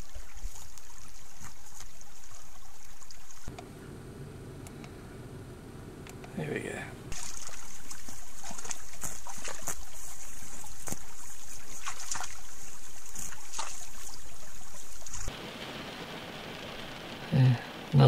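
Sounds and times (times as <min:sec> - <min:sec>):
water hissing in creek: 0:00.0 - 0:03.5, 0:07.1 - 0:18.0
sharp clicks or splashes: 0:07.1 - 0:10.0, 0:10.6 - 0:17.1.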